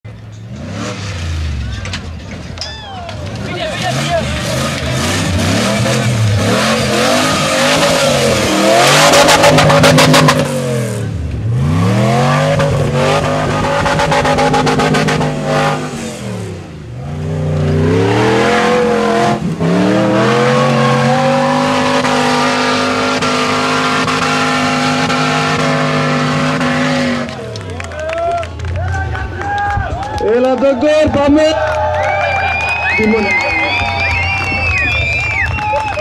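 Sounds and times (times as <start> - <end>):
engine revving hard: 0.5 - 1.6, 3.4 - 27.5.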